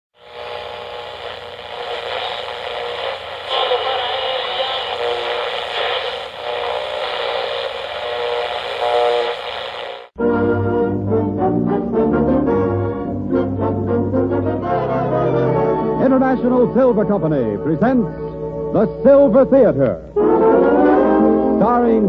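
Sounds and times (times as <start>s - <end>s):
faint tones and voices: 0.2s - 10.1s
radio static hiss: 0.2s - 10.2s.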